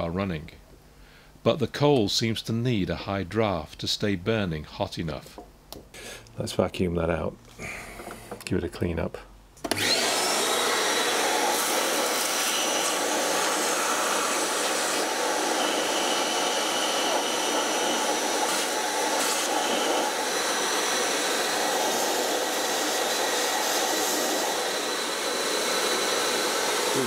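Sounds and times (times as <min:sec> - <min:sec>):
vacuum cleaner running: 0:09.6 - 0:27.0.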